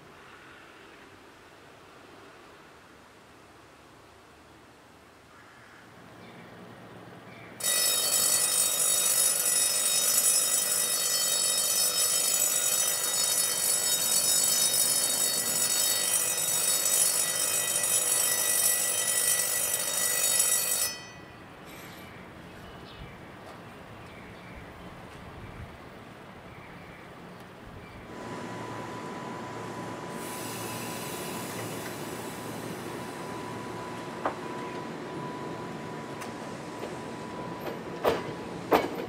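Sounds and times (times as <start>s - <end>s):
railway station bell ringing: 7.6s - 22.9s, 28.1s - 39.0s.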